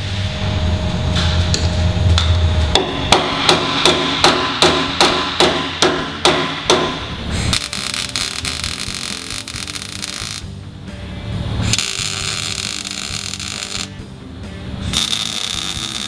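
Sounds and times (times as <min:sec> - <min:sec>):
hammer striking steel: 0:01.1 - 0:10.4.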